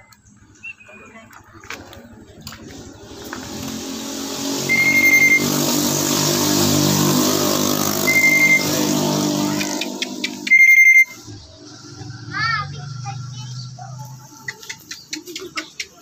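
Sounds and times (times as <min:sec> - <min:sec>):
vehicle engine passing: 0:00.4 - 0:16.0
short high-pitched beeps: 0:04.7 - 0:05.8, 0:08.0 - 0:08.9, 0:10.4 - 0:11.2.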